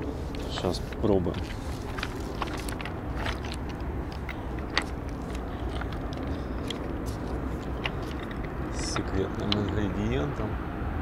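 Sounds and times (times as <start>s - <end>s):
clicks and rustles of handling: 0.0s - 9.9s.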